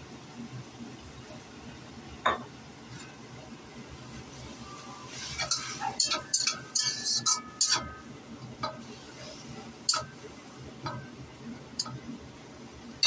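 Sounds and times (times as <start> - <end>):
utensil scraping and clinking wok: 5.1 - 10.2, 11.8 - 12.0.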